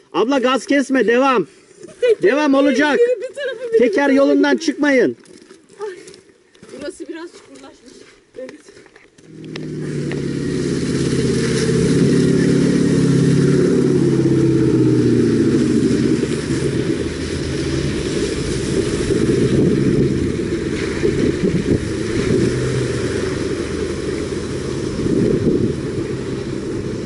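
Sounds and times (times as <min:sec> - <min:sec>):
off-road vehicle engine revving: 0:09.2 - 0:27.0.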